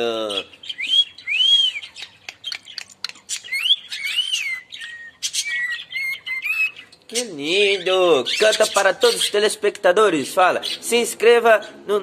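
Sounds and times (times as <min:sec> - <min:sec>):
cockatiel whistling: 0:00.7 - 0:02.6, 0:03.3 - 0:06.9
bird chirps and clicks: 0:01.3 - 0:07.3.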